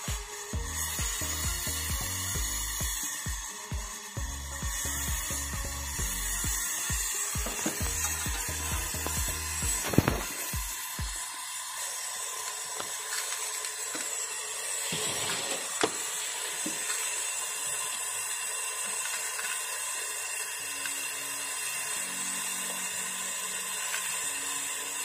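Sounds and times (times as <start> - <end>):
torch flame hissing: 0.0 - 19.7.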